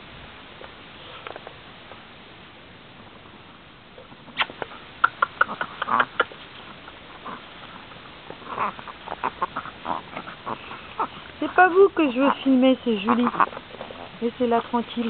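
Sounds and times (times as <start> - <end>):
puppies yipping and squeaking: 4.4 - 14.6.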